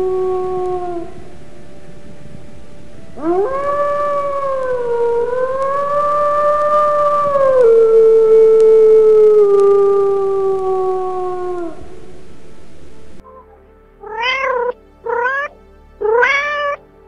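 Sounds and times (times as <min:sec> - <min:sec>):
wolf howling: 0:00.0 - 0:01.4, 0:03.1 - 0:12.3, 0:14.0 - 0:16.8.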